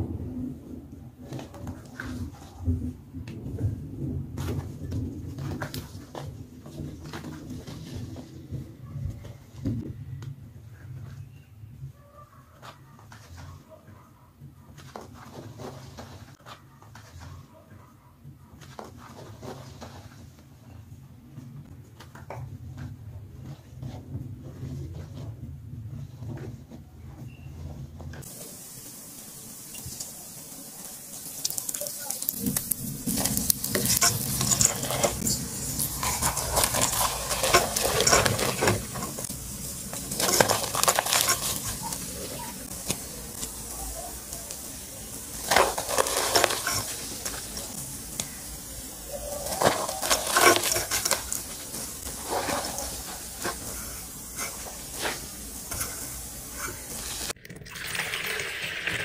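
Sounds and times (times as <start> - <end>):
chalk crunching in water: 31.1 - 57.4.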